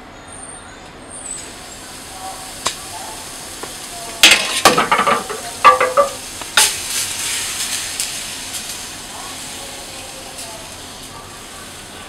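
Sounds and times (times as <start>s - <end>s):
faint batter sizzle: 1.2s - 12.0s
utensils knocking and scraping griddle: 3.6s - 8.8s.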